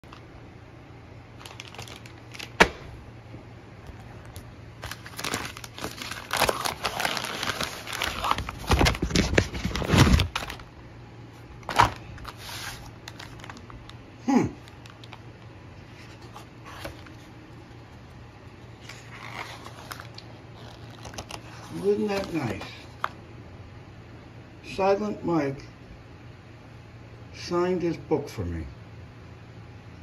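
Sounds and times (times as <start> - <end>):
paper mailer crinkling and tearing: 1.4 - 2.8, 3.9 - 10.7, 11.6 - 14.0, 18.7 - 23.1.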